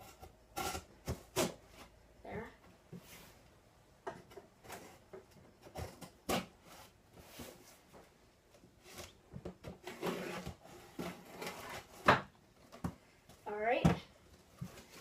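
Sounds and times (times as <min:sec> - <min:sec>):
cardboard box being cut open: 0:09.8 - 0:12.2.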